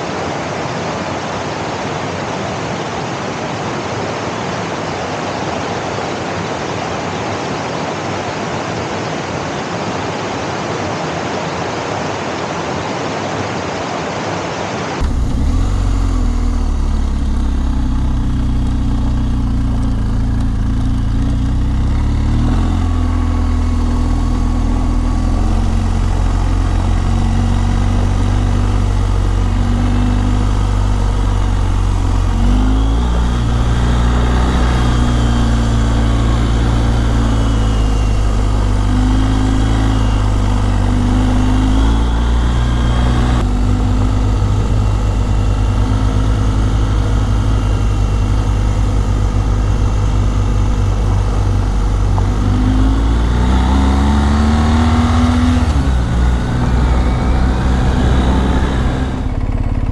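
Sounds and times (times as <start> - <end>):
motorcycle engine running: 15.0 - 59.9.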